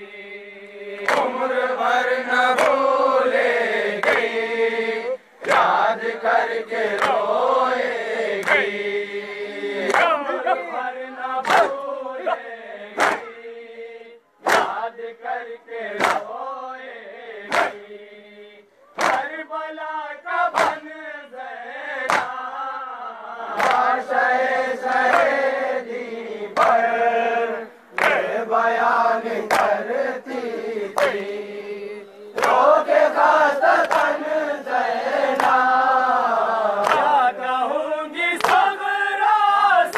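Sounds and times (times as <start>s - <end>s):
men chanting together: 0.0s - 39.9s
hands striking chests: 14.5s - 14.7s, 20.5s - 20.8s.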